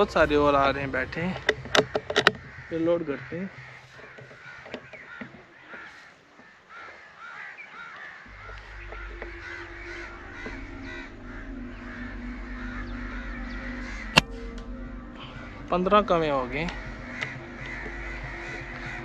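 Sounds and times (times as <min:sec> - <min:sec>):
crows cawing: 0:00.0 - 0:19.0
low steady hum: 0:08.3 - 0:19.0.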